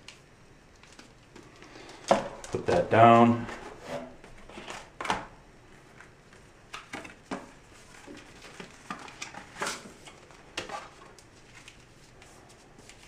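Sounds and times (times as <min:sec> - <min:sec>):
paper and card packaging rustling: 0:05.8 - 0:13.0.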